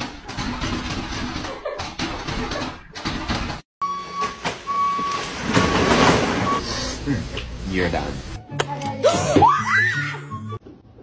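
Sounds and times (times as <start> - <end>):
forklift warning beeps: 3.8 - 6.8
cardboard boxes crashing down: 5.2 - 6.6.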